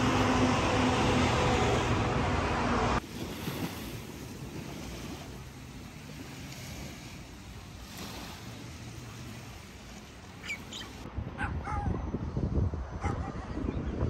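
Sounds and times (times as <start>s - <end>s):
small waves washing onto beach: 0.0s - 11.1s
wind buffeting microphone: 0.0s - 14.0s.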